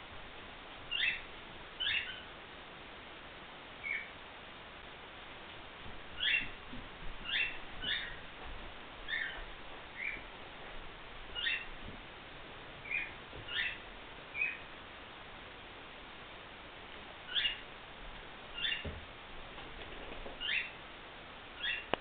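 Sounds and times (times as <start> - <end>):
cockatiel chirping: 0.9 - 2.3, 3.8 - 4.1, 6.2 - 6.6, 7.2 - 8.2, 9.1 - 9.4, 10.0 - 10.2, 11.4 - 11.7, 12.8 - 14.7, 17.3 - 17.6, 18.6 - 18.9, 20.4 - 20.8, 21.6 - 21.9.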